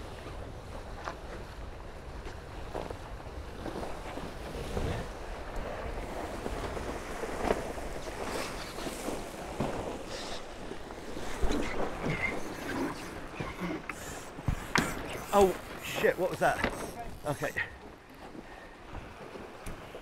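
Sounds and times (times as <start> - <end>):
water splashes: 6.2 - 20.0.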